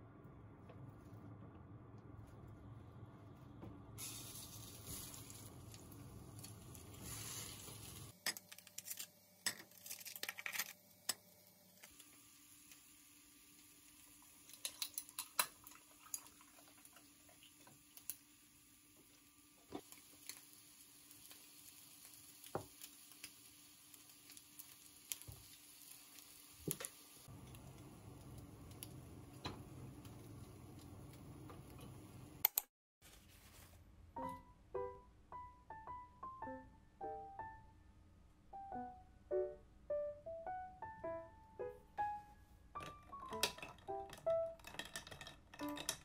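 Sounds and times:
liquid pouring over ice: 14.2 - 17.5
soft piano music: 34.1 - 44.8
ice cubes clicking in a glass: 42.9 - 46.0.

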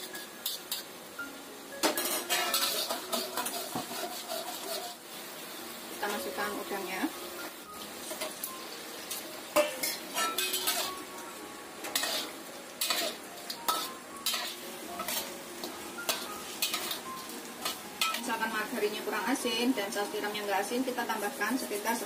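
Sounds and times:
metal spatula scraping a wok: 0.0 - 0.9, 1.8 - 5.1, 9.6 - 11.1, 11.8 - 18.5
sizzling: 0.0 - 22.0.

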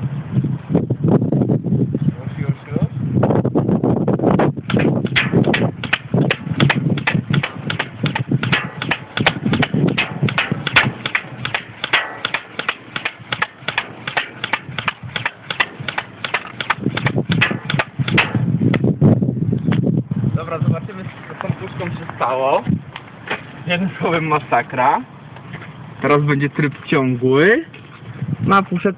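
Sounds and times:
airsoft rifle firing shots: 4.7 - 18.6.

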